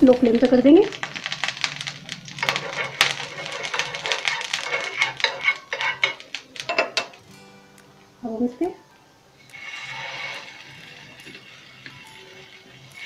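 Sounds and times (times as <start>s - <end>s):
metal spoon scraping a griddle: 0.9s - 7.2s, 9.4s - 13.0s.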